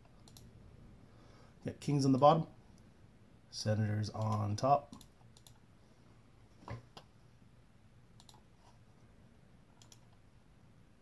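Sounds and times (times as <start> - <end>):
computer mouse clicking: 0.1 - 0.5, 4.2 - 5.6, 8.2 - 8.5, 9.8 - 10.2.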